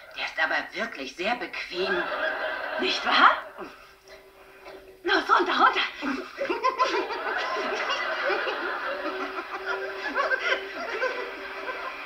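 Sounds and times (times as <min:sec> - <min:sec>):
studio audience laughing: 0:01.8 - 0:03.9, 0:06.0 - 0:12.0.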